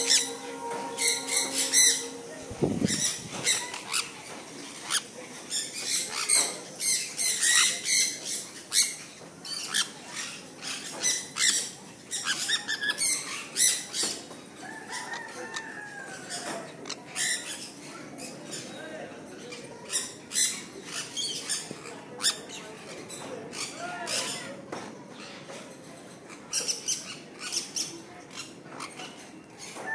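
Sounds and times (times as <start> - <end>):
parrots giving sharp calls: 0.0 - 4.1.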